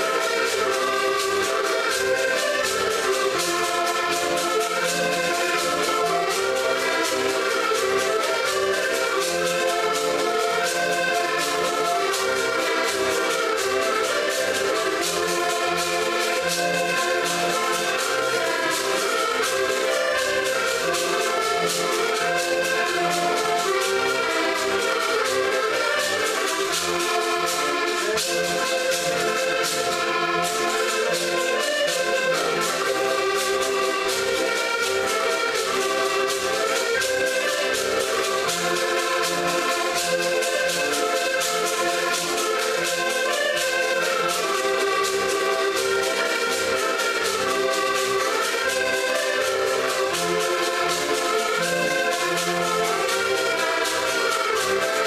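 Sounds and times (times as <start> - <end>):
accordions playing folk tune: 0.0 - 55.0
plucked string instrument: 0.0 - 55.0
wooden scraper rhythm: 0.0 - 55.0.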